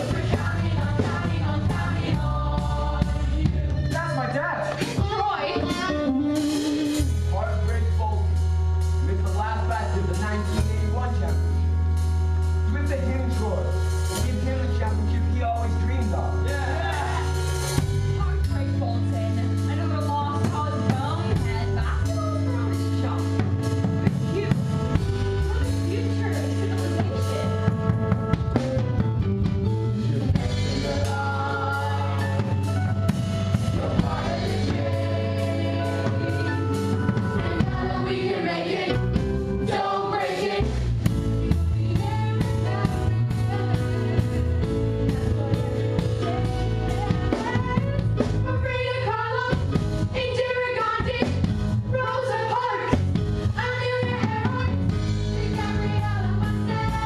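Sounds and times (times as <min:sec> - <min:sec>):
singers: 0:00.0 - 0:07.2, 0:30.1 - 0:32.8, 0:33.6 - 0:40.9.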